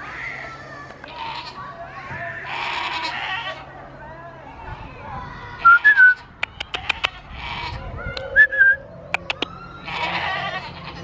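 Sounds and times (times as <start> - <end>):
goats bleating: 0.0 - 3.7, 6.7 - 7.8, 9.8 - 11.0
high whistle-like notes: 8.2 - 9.5
sharp clicks: 9.2 - 9.5.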